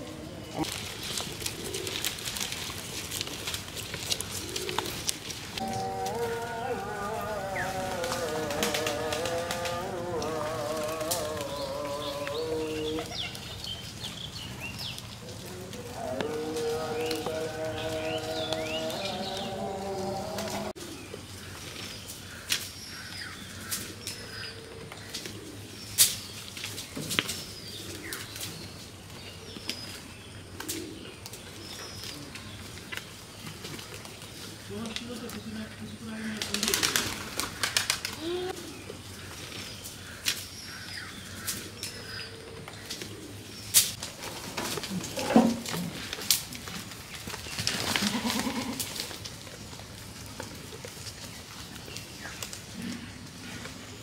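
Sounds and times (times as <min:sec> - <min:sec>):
goats clicking and rustling: 0:00.5 - 0:54.0
goat bleating: 0:05.6 - 0:13.1, 0:15.8 - 0:20.7, 0:47.9 - 0:49.0.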